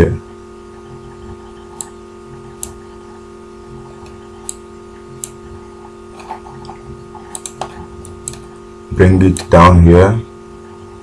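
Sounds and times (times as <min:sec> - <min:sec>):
low electrical hum: 0:00.0 - 0:11.0
computer mouse clicking: 0:01.5 - 0:02.0, 0:04.0 - 0:04.6, 0:06.6 - 0:08.5, 0:09.3 - 0:09.6.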